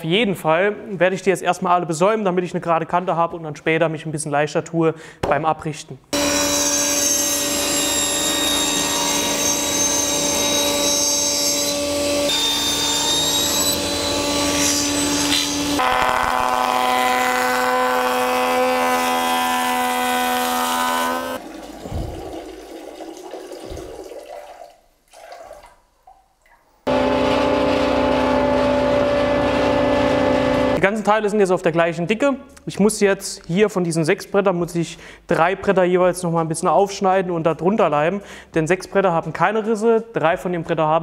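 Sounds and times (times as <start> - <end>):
table saw cutting boards: 6.2 - 21.4, 26.9 - 30.8.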